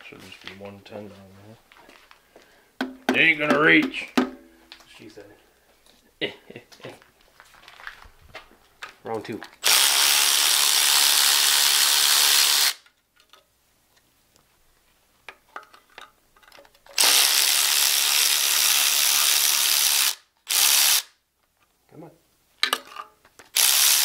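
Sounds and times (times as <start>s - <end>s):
power tool running: 9.6s - 12.8s, 17.0s - 21.1s, 23.6s - 24.0s.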